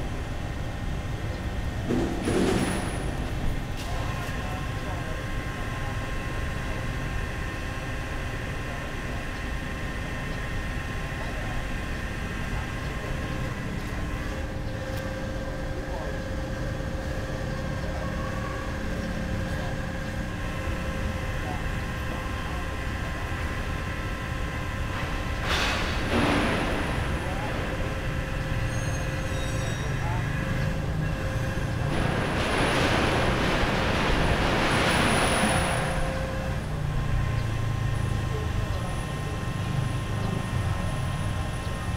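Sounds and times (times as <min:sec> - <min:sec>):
faint machinery whines: 0:00.0 - 0:41.9
machinery rumble: 0:00.0 - 0:41.9.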